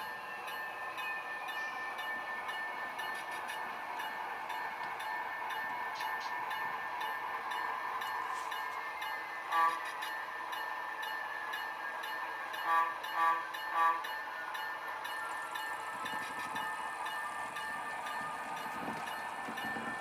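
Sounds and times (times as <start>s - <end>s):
model locomotive engine running: 0.0s - 20.0s
locomotive horn toots: 9.5s - 9.8s, 12.6s - 14.1s.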